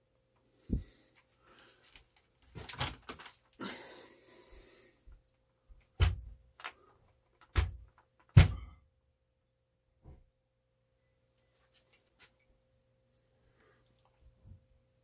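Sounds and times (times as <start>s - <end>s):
rustling handling noise: 1.1s - 3.6s.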